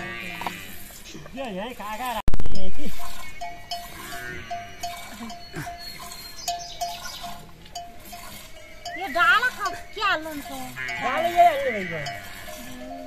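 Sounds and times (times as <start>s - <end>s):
animal bleating: 0.0s - 0.9s, 8.8s - 13.0s
livestock bell clinking: 2.5s - 13.0s.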